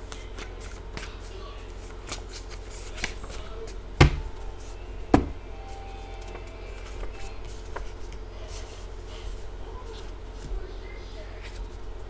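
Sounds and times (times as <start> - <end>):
low steady hum: 0.0 - 12.0
knocks on a tabletop: 5.1 - 5.4.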